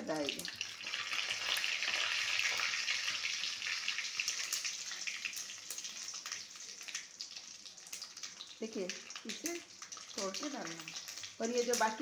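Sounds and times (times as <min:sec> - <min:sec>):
hot oil sizzling: 0:00.0 - 0:12.0.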